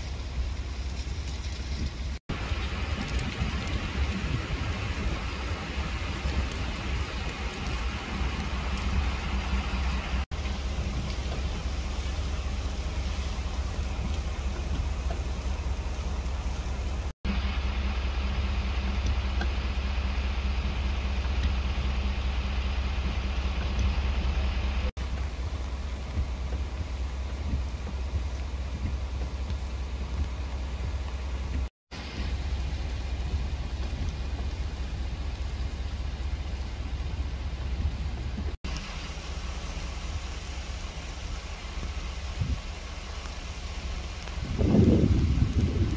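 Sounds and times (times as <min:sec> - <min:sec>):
freezing rain hissing on ice: 0:00.0 - 0:45.9
low steady rumble: 0:00.0 - 0:45.9.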